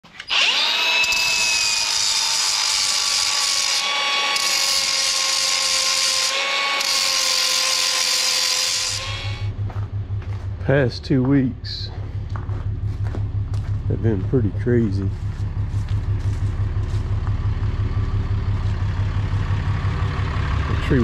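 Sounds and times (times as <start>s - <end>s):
angle grinder grinding metal: 0.0s - 9.6s.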